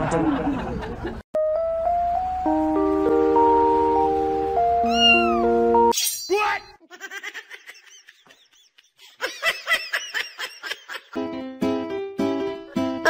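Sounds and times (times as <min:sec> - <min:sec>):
background music: 0:01.4 - 0:06.0, 0:11.1 - 0:13.0
cat meowing: 0:04.8 - 0:05.5.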